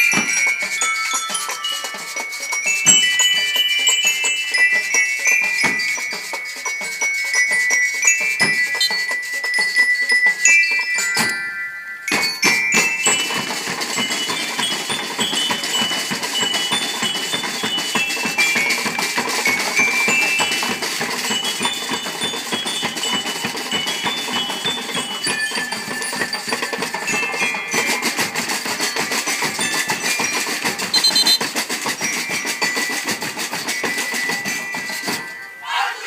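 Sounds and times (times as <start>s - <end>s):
snare drums playing rapidly: 0.0s - 9.7s, 12.1s - 35.4s
high bell-like melody: 0.0s - 35.7s
voices shouting: 35.6s - 36.0s.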